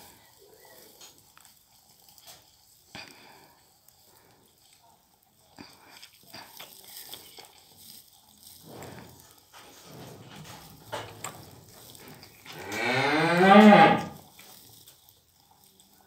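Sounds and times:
cow mooing: 0:12.5 - 0:14.2.

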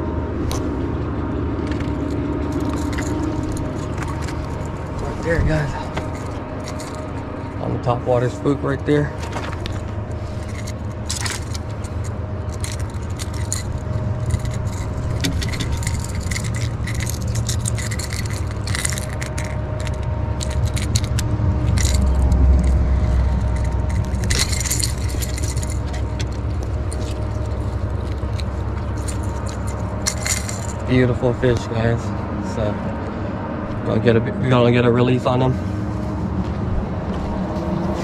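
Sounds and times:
low rumble: 0:00.0 - 0:34.4
metal lure clinking: 0:01.7 - 0:07.5, 0:09.8 - 0:31.0.

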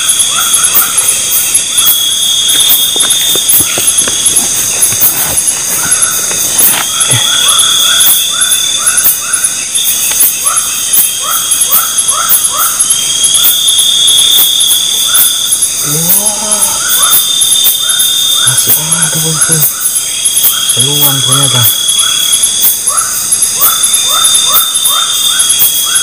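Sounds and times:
insects pulsing trill: 0:00.0 - 0:26.0
low voice-like sounds: 0:07.0 - 0:07.4, 0:15.8 - 0:16.9.

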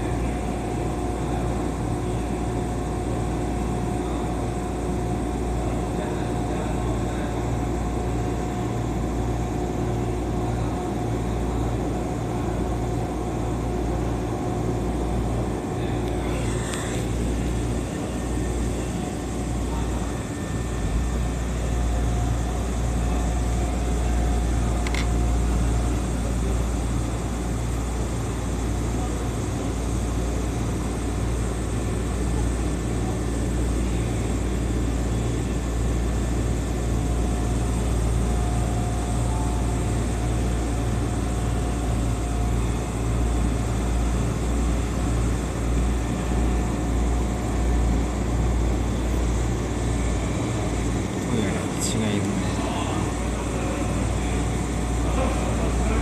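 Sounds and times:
train cab low hum: 0:00.0 - 0:56.0.

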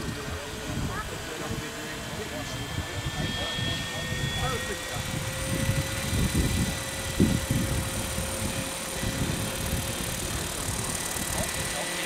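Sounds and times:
electric motor whine: 0:00.0 - 0:12.0
gusty low rumble: 0:02.6 - 0:10.9.

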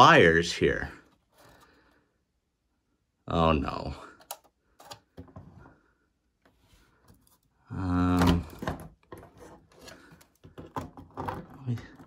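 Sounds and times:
hands handling plastic shell: 0:08.2 - 0:12.0.

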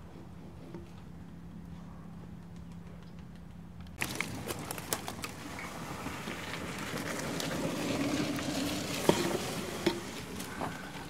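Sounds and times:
twigs snapping: 0:03.8 - 0:05.8
leaves and twigs crackling and rustling: 0:03.9 - 0:11.0.

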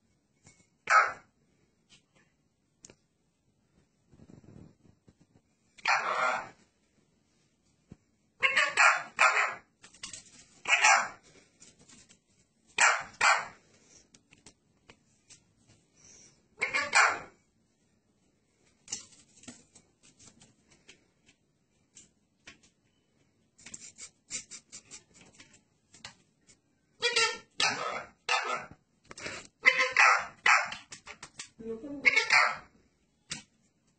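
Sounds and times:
parakeet harsh calls: 0:00.9 - 0:01.2, 0:05.8 - 0:06.6, 0:08.4 - 0:09.6, 0:10.6 - 0:11.2, 0:12.8 - 0:13.6, 0:16.6 - 0:17.3, 0:27.0 - 0:28.7, 0:29.6 - 0:30.8, 0:32.0 - 0:32.7.

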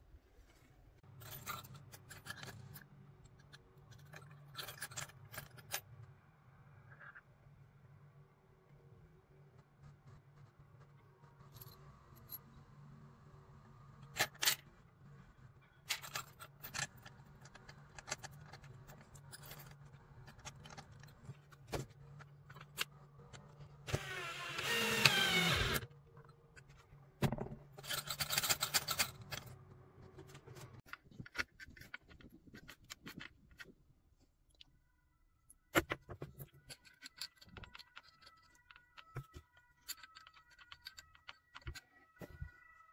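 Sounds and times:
small metal parts rattling: 0:01.1 - 0:06.0, 0:15.8 - 0:23.7, 0:27.4 - 0:29.6, 0:30.2 - 0:33.8, 0:36.1 - 0:42.6
power drill driving screw into wood: 0:23.9 - 0:25.8.

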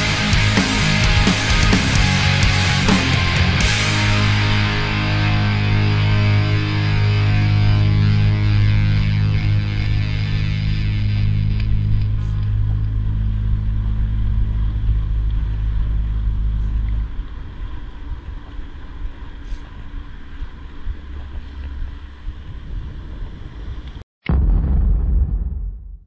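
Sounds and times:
vehicle engine running: 0:00.0 - 0:17.6.

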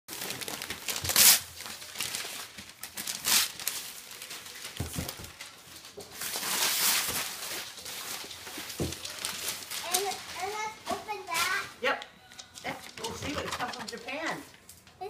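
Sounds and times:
wrapping paper tearing and crumpling: 0:00.1 - 0:11.8.

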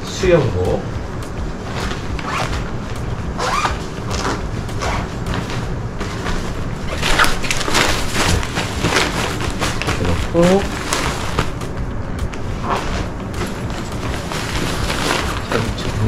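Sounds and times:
fabric and nylon bag rustling: 0:00.3 - 0:16.0
scrapes of packing: 0:01.6 - 0:11.6, 0:12.5 - 0:16.0.

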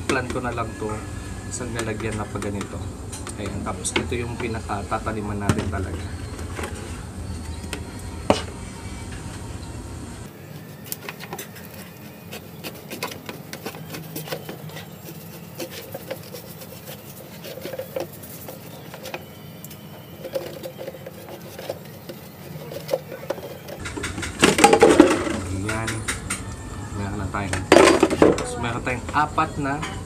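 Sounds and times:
plastic bottle being cut: 0:10.8 - 0:19.3.

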